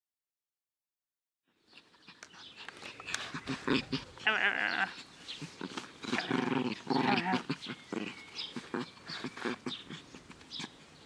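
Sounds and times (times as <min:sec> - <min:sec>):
dog growling: 0:02.4 - 0:10.8
dog whining: 0:05.7 - 0:10.8.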